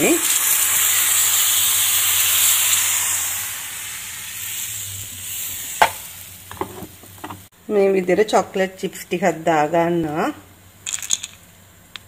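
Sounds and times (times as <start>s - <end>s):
batter sizzling in a pan: 0.0s - 7.2s.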